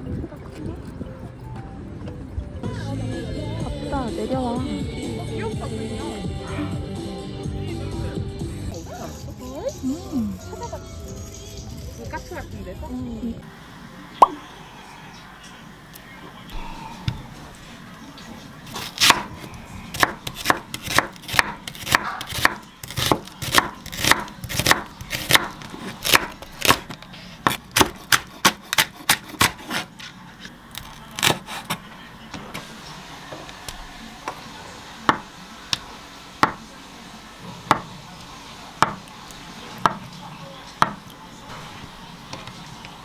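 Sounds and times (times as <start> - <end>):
knife chopping on wooden board: 18.7 - 29.9, 37.6 - 37.9, 38.8 - 39.0, 40.8 - 41.0.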